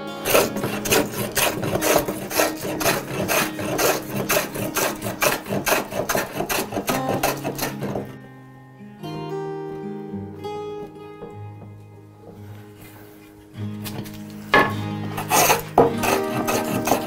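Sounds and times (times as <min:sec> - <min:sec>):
hand plane cutting wood: 0:00.2 - 0:08.2, 0:15.0 - 0:17.0.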